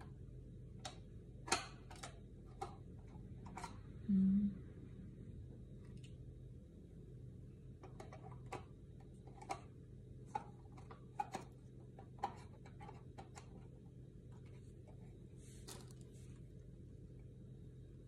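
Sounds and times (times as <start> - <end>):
lantern parts clicking and tapping: 0.8 - 3.8, 10.3 - 13.6
soft rustle: 15.3 - 16.6.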